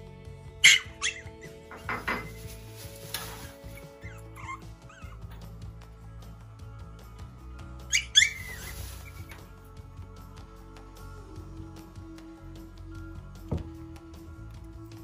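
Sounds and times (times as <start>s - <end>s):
puppy yapping: 0.6s - 1.6s, 3.2s - 5.5s, 7.9s - 9.4s
puppy whining: 0.6s - 1.8s, 3.4s - 5.6s, 7.8s - 9.5s.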